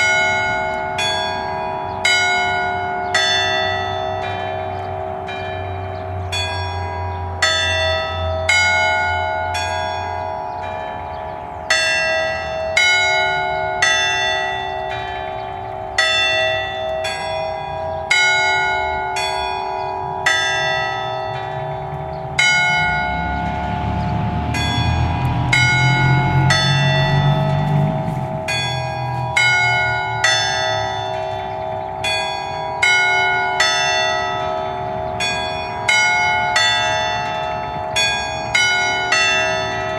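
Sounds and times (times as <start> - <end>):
church bells ringing: 0.0 - 39.9
low rumble: 21.6 - 30.2.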